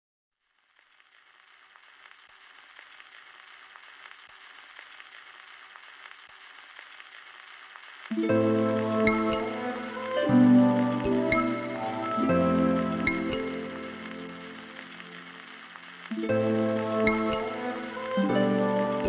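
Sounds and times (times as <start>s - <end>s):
crackling hiss: 0.3s - 19.0s
music with sustained tones: 8.1s - 19.0s.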